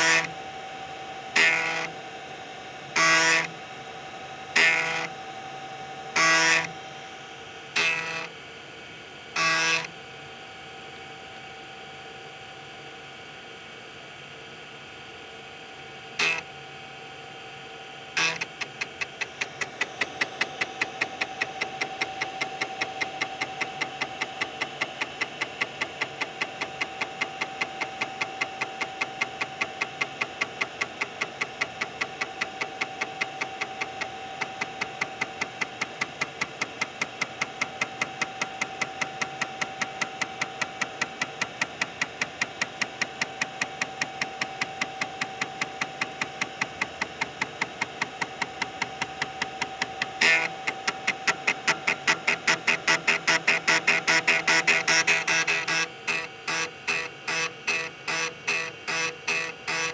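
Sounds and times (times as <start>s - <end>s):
floppy drive hum: 18.1s - 59.9s.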